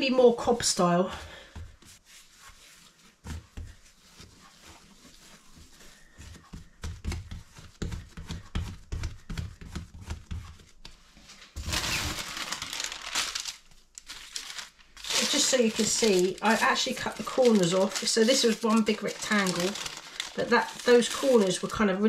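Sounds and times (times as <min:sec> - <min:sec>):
baking paper crinkling: 0:00.0 - 0:22.0
hands patting dough on stone: 0:01.4 - 0:11.1.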